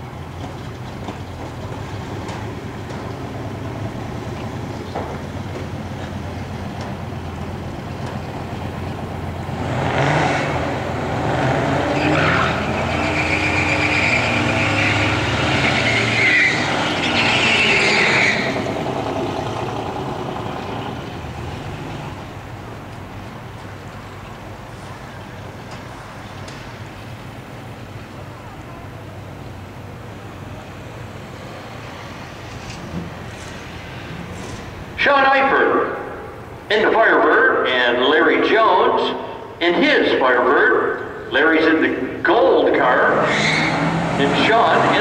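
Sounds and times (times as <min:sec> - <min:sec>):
drag car engines revving: 0:00.0 - 0:45.0
high tire squeal: 0:09.7 - 0:20.4, 0:42.8 - 0:45.0.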